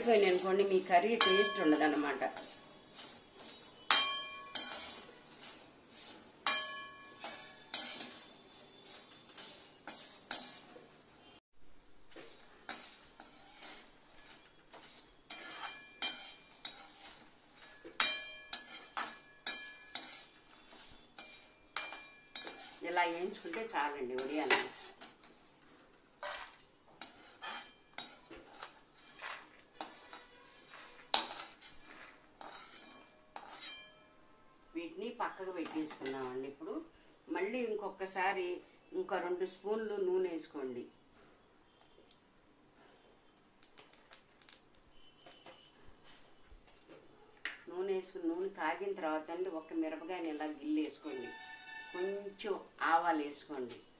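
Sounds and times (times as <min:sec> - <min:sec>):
metal skimmer scraping a pan: 0:00.0 - 0:11.4, 0:12.1 - 0:34.0, 0:50.8 - 0:52.7.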